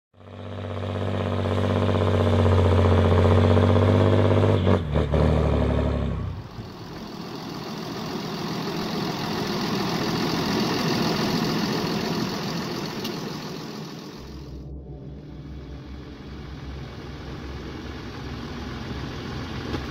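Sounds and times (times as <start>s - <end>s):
tractor diesel engine running: 6.2s - 19.9s.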